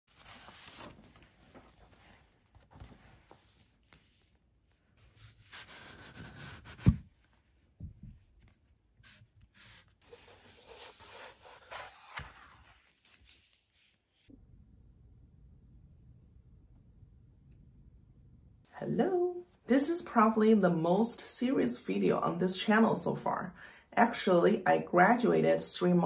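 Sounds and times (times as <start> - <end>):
paper and plastic packaging rustling: 0.1 - 3.9.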